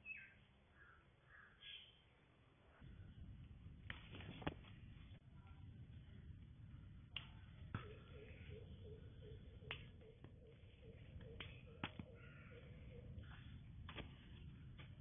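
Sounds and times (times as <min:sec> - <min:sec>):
faint chirp: 0:07.7 - 0:13.6.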